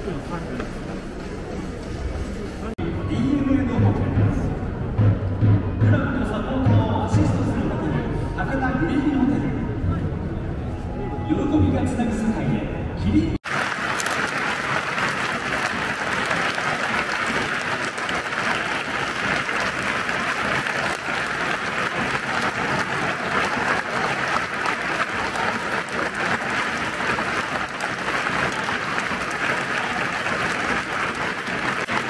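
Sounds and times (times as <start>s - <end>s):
stadium crowd applauding: 13.4s - 32.0s.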